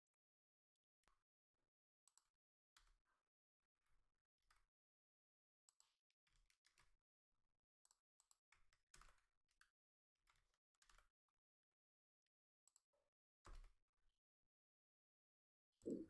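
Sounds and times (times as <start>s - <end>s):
faint keyboard typing: 6.3s - 6.9s.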